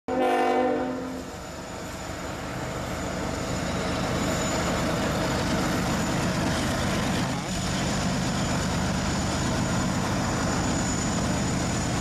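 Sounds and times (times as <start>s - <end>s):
locomotive air horn: 0.1s - 1.3s.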